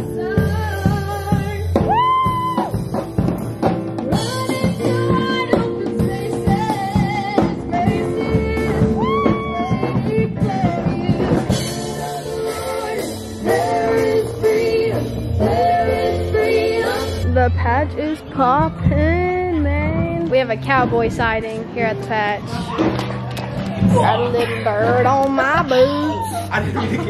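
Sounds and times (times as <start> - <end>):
woman singing into microphone: 0.0 - 2.4, 4.1 - 22.0
drum and bass accompaniment: 0.0 - 27.0.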